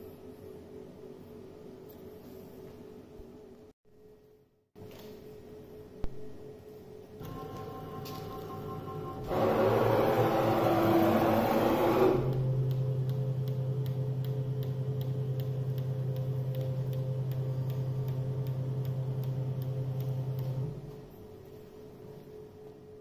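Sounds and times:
low motor hum: 7.2s - 22.0s.

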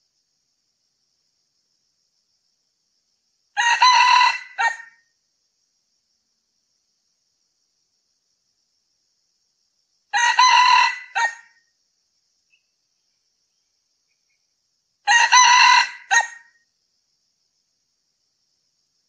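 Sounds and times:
rooster crowing: 3.6s - 5.0s, 10.1s - 11.6s, 15.0s - 16.6s.

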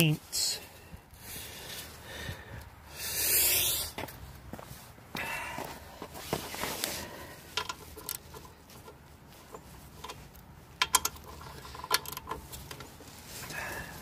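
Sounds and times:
socket ratchet clicking: 10.8s - 12.4s.

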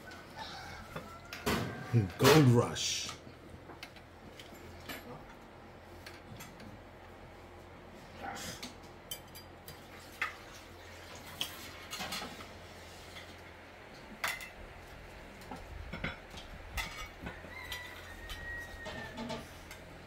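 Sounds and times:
cutlery and plates clinking: 16.8s - 19.4s.

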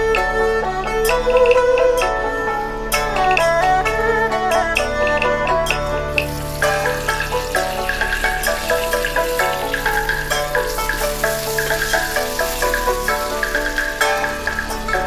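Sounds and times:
instrumental background music: 0.0s - 15.0s
spices sizzling in hot oil: 5.7s - 15.0s
wooden spoon stirring: 6.2s - 15.0s.

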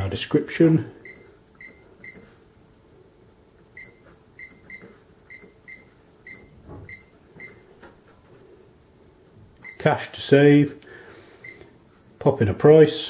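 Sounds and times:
cash register keypad beeps: 3.8s - 7.6s.

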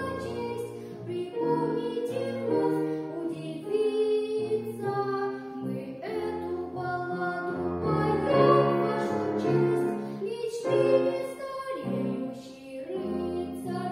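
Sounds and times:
boy singing: 0.0s - 13.9s
grand piano accompaniment: 0.0s - 13.9s.

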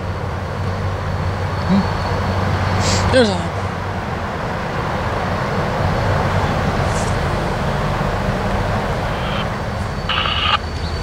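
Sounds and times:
locomotive low rumble: 0.0s - 11.0s
scanner radio noise burst: 6.8s - 11.0s.

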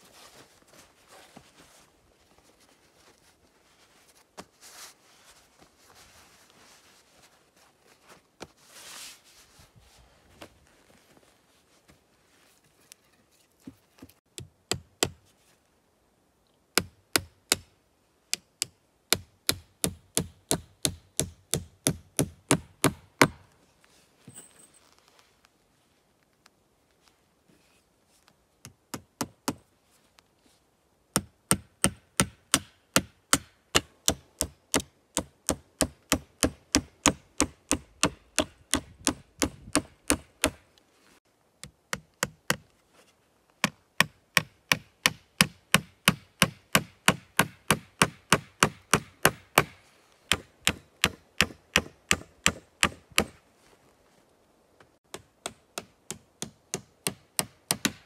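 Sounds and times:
hatchet hammering nails into wood: 16.8s - 17.7s, 18.3s - 23.4s, 31.1s - 40.6s, 43.6s - 53.4s, 55.1s - 58.0s.

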